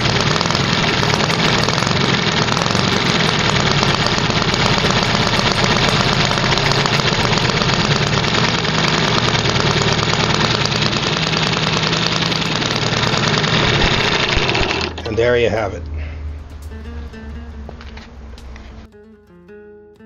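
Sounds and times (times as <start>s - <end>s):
model engine running: 0.0s - 15.3s.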